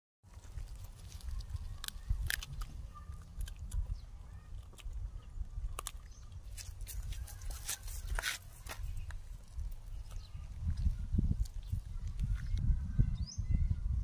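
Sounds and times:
puppy gnawing on hard object: 0.3 - 12.4
wind rumble on microphone: 0.4 - 14.0
small animal steps on gritty dirt: 5.7 - 12.7.

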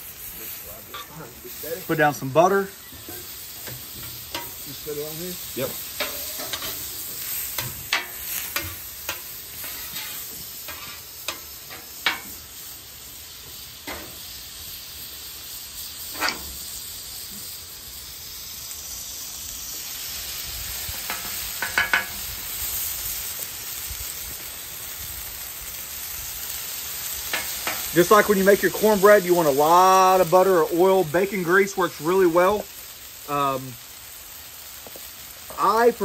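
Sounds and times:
butter and oil sizzling on griddle: 0.0 - 36.0
metal spatula scraping steel: 5.9 - 12.2.

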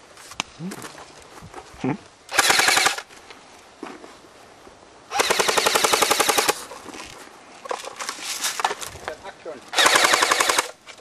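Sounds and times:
airsoft rifle automatic fire: 2.3 - 3.0, 5.1 - 6.6, 9.7 - 10.8.

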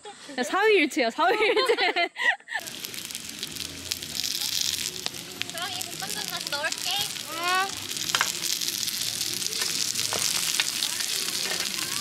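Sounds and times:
dumplings sizzling in a pan: 2.6 - 12.0.

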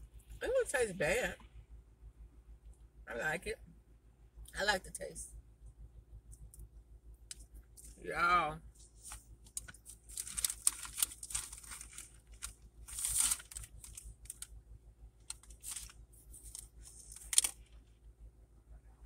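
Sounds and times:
paper wrapper crinkling: 9.1 - 14.5, 15.2 - 17.7.

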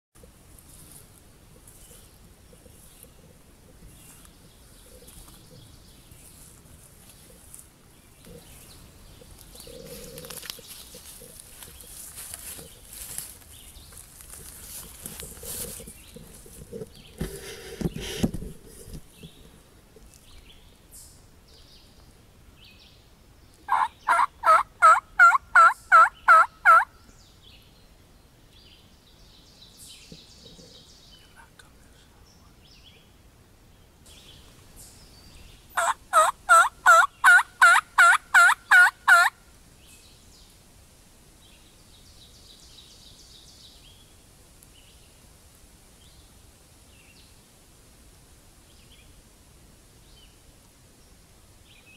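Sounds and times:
faint woodland background: 0.1 - 51.9
turkey call yelps: 23.7 - 26.9, 35.8 - 39.3.

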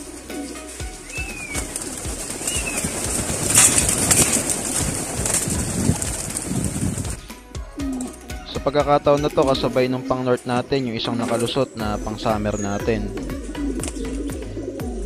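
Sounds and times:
pigeon wings clattering: 0.0 - 8.2, 13.0 - 15.0
pigeons cooing: 0.0 - 15.0.

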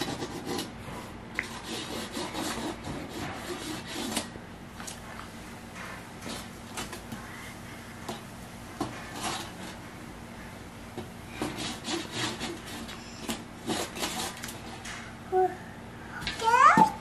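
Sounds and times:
hands scratching tape on tray: 0.0 - 0.7, 1.4 - 4.3, 8.8 - 9.8, 11.4 - 15.0.

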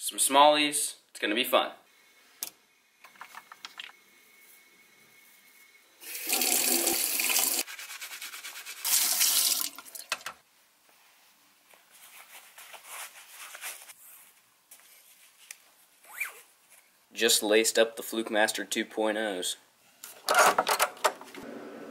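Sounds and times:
tap water running into sink: 6.1 - 7.6, 8.9 - 10.4.

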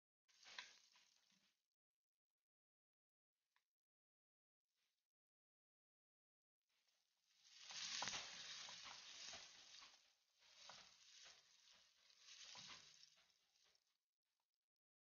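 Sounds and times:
onions sizzling in oil: 7.4 - 13.0.

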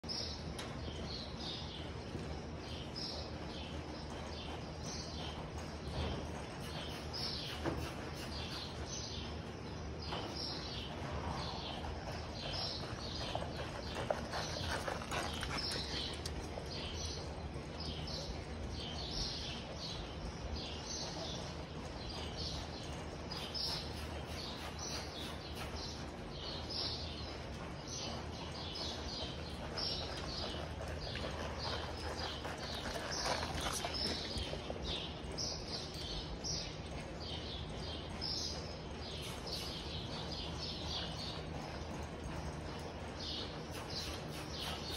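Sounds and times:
horse hoofbeats on dirt: 0.0 - 44.9.

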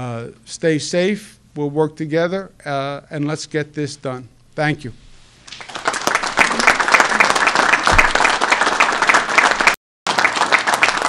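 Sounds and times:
applause: 5.5 - 11.0.

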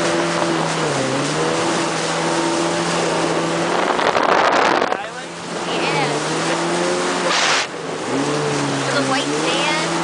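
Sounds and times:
jet ski engine: 0.0 - 10.0
wind: 0.0 - 10.0
water hiss: 7.2 - 7.7
loud rushing noise: 7.2 - 7.8.

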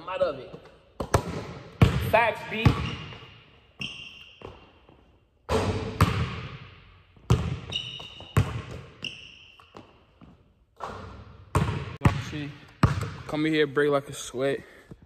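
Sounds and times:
sneakers squeaking: 0.5 - 13.3
basketball bouncing on wooden floor: 1.0 - 3.3, 4.4 - 6.6, 7.2 - 13.3.

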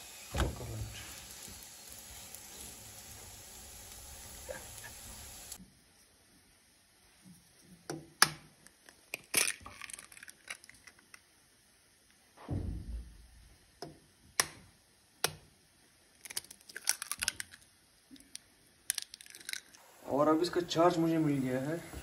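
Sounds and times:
eggs cracking on bowl rim: 18.2 - 19.8.

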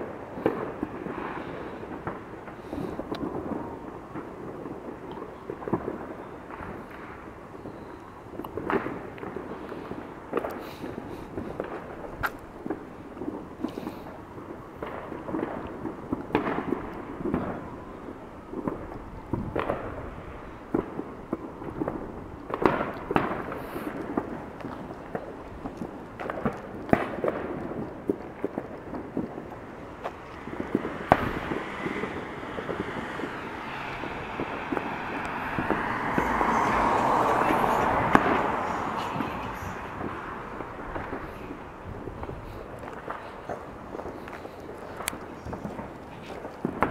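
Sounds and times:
continuous rumble: 0.0 - 46.9
fireworks bangs and pops: 0.0 - 46.9
car driving past: 30.2 - 41.8.

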